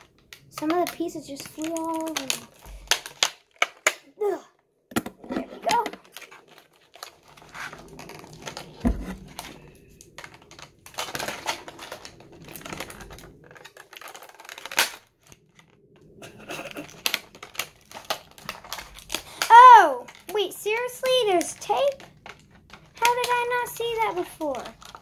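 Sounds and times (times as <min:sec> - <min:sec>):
plastic packaging crinkling: 0:00.0 - 0:04.1, 0:05.2 - 0:25.0
scissors cutting plastic: 0:00.0 - 0:04.1, 0:10.3 - 0:15.6, 0:16.3 - 0:25.0
low bump: 0:07.3 - 0:13.3.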